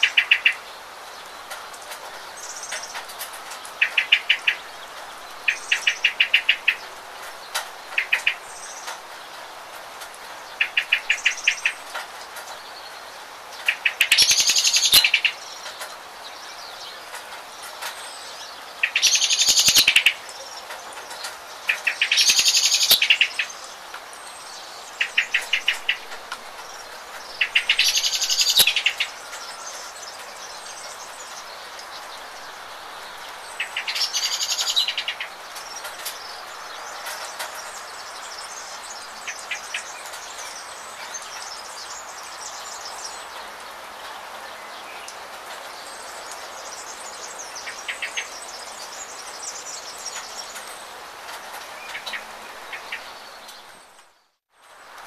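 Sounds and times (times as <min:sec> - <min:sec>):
rain pattering: 0:00.0 - 0:55.0
songbirds singing: 0:00.0 - 0:55.0.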